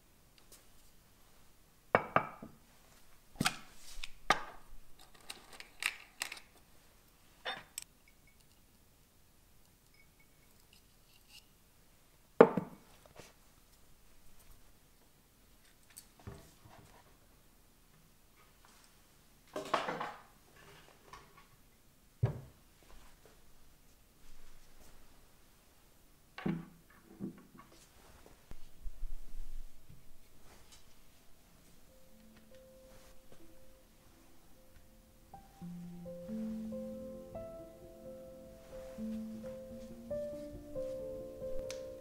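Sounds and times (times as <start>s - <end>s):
objects clattering on a table: 19.6s - 21.4s.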